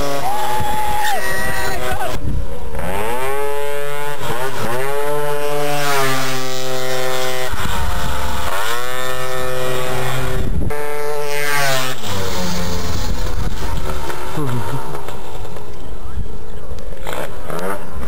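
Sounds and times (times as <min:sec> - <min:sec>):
scooter engine revving: 0:02.6 - 0:15.7, 0:16.9 - 0:18.0.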